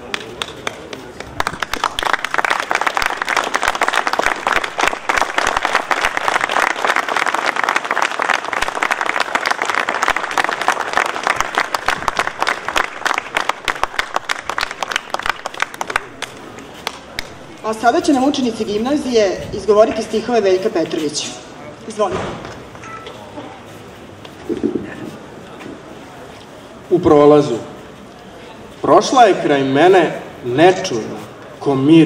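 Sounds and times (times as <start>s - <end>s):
crowd applauding: 0.0s - 17.6s.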